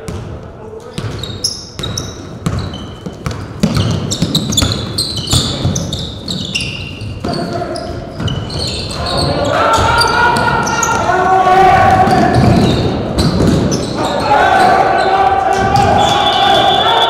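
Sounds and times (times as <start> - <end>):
basketball bouncing on gym floor: 0.0 - 11.0, 12.0 - 13.9
sneakers squeaking on court: 0.1 - 11.1, 12.0 - 16.4.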